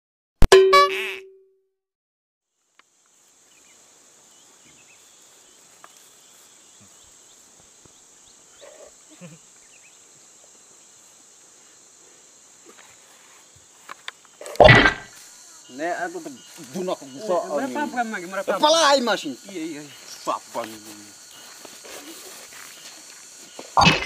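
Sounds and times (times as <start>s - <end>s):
high-pitched insect drone: 3.0s - 24.0s.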